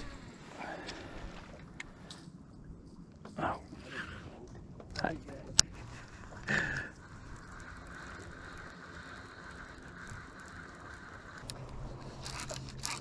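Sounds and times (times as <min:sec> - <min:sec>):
fishing reel gears whirring: 0:00.0 - 0:01.5, 0:05.6 - 0:13.0
low steady hum: 0:00.0 - 0:13.0.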